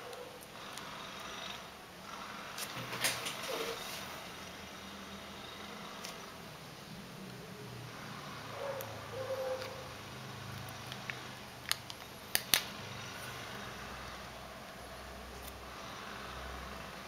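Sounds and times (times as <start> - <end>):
plastic film crackling: 10.6 - 12.7.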